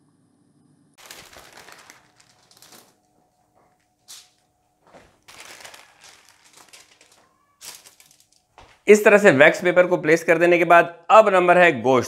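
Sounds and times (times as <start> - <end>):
wax paper rustling and crinkling: 1.0 - 8.8.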